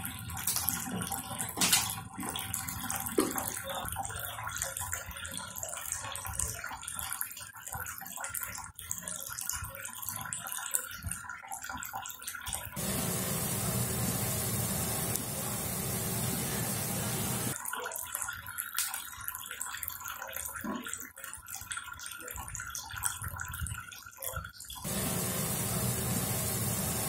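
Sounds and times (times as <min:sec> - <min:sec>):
pot boiling and bubbling: 0:12.7 - 0:17.6, 0:24.8 - 0:27.0.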